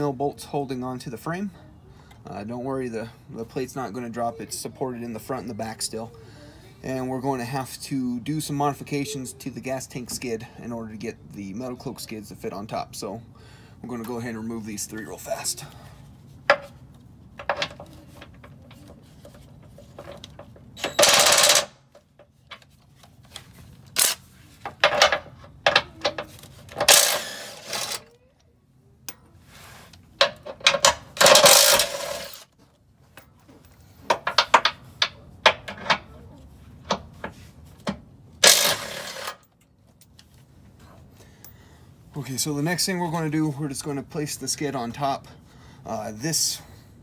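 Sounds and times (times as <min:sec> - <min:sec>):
impact driver rattling bursts: 0:20.9 - 0:21.8, 0:26.8 - 0:28.0, 0:30.7 - 0:32.4, 0:38.4 - 0:39.4.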